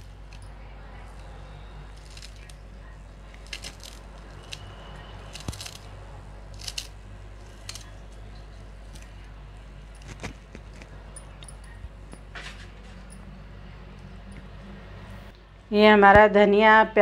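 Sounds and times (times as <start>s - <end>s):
steady low hum: 0.0s - 17.0s
knife cutting herbs: 1.2s - 9.3s, 9.9s - 13.0s.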